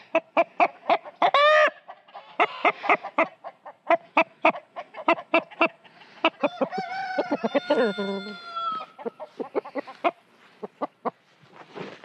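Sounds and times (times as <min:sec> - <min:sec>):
rooster clucking: 0:00.0 - 0:11.2.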